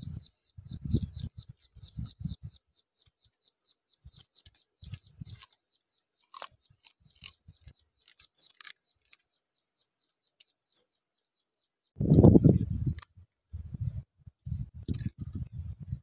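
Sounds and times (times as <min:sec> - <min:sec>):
high insect chirping: 0:00.0 - 0:13.1
chewing crunchy lettuce: 0:04.1 - 0:09.3.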